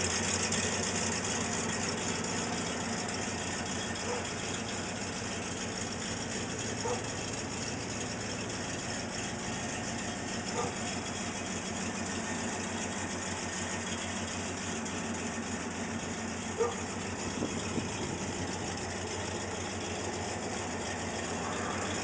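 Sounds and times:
car engine idling: 0:00.0 - 0:22.0.

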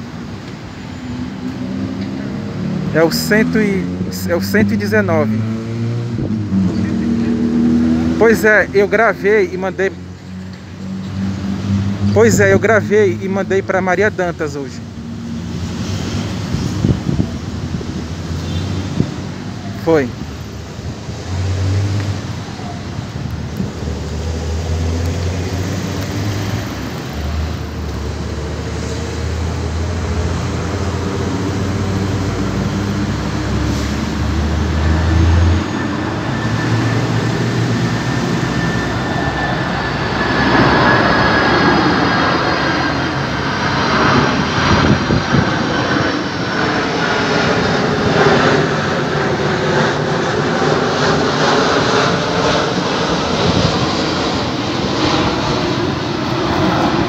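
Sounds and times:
high whine gliding downward: 0:00.0 - 0:57.0
jet engines droning: 0:00.0 - 0:57.0.

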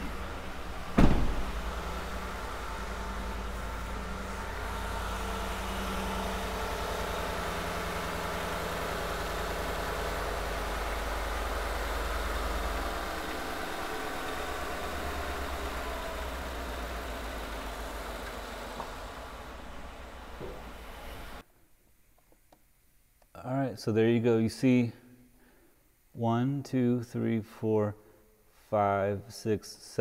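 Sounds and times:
misfiring car engine idling: 0:00.0 - 0:21.4.

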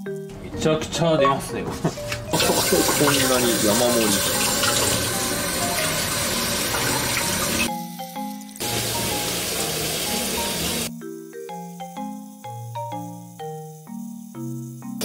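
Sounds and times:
background music: 0:00.0 - 0:15.0
tap water running into sink: 0:02.0 - 0:07.7, 0:08.6 - 0:10.9.

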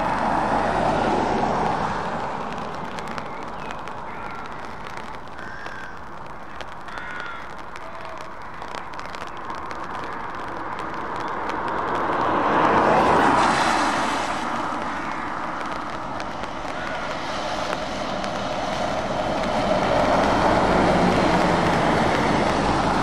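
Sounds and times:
tyre hiss on wet road: 0:00.0 - 0:23.0
crow cawing: 0:04.1 - 0:08.9, 0:09.9 - 0:10.4, 0:16.6 - 0:17.2
truck engine: 0:16.8 - 0:23.0.

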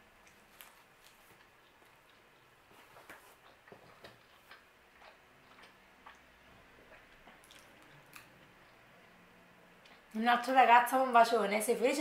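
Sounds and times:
wet chewing clicks: 0:00.2 - 0:09.2, 0:09.8 - 0:10.2.

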